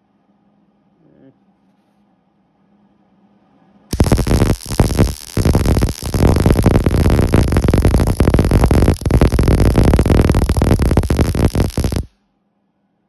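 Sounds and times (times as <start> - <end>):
welder arc crackling and buzzing: 3.9 - 12.1.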